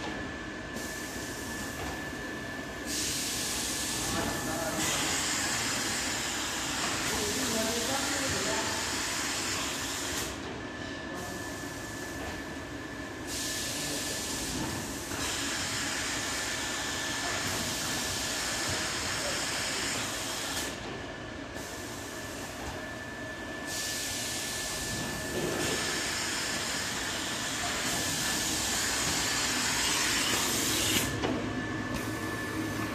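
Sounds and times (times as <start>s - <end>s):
welding machine running: 2.9s - 10.4s, 23.8s - 31.2s.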